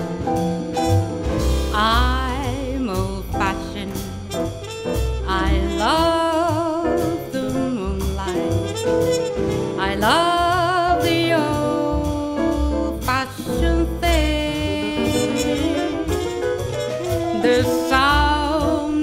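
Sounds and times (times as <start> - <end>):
drums: 0.0 - 19.0
piano: 0.0 - 19.0
upright bass: 0.0 - 19.0
trumpet with vibrato: 4.2 - 6.6, 8.2 - 10.3, 14.2 - 18.9.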